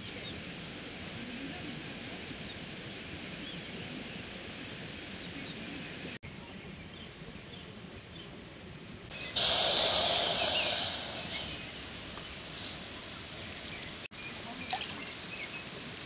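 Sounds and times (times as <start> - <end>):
outdoor background noise: 0.0 - 16.0.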